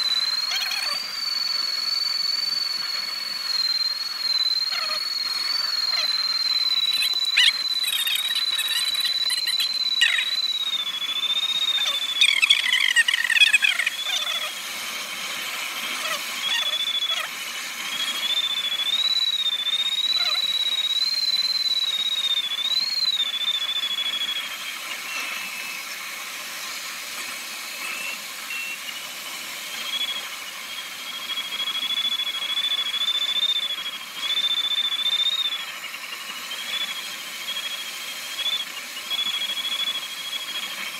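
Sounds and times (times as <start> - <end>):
falling chirps: 0.0 - 26.0
thin high tone: 0.0 - 40.9
airflow hiss: 10.9 - 18.8, 24.0 - 31.8.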